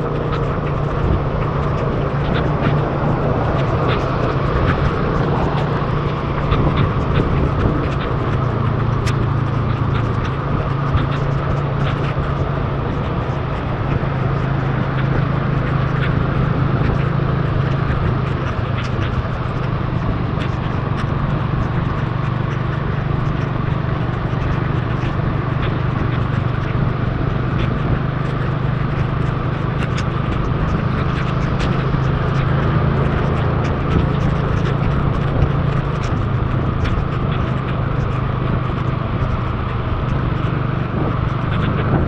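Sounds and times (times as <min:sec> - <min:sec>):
motorbike engine running: 0:00.0 - 0:42.0
wind rush: 0:00.0 - 0:42.0.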